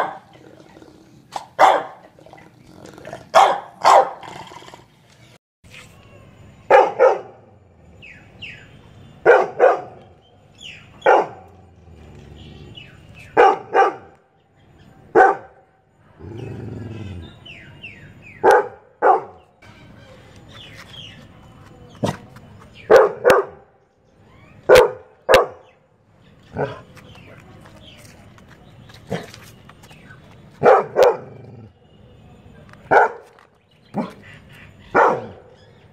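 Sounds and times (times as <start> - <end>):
dog barking: 0.0 - 0.4, 1.3 - 2.1, 3.3 - 4.3, 6.7 - 7.4, 9.2 - 10.0, 11.0 - 11.6, 13.4 - 14.2, 15.1 - 15.6, 18.4 - 19.4, 22.9 - 23.6, 24.7 - 25.7, 30.6 - 31.4, 32.9 - 33.3, 34.9 - 35.6.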